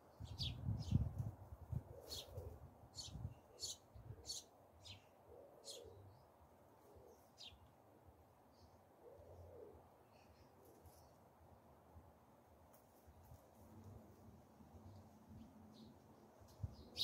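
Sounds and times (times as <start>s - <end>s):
bird cooing softly: 1.7s - 2.7s, 3.5s - 6.2s, 6.8s - 7.5s, 9.0s - 11.0s
small birds chirping: 2.0s - 6.3s.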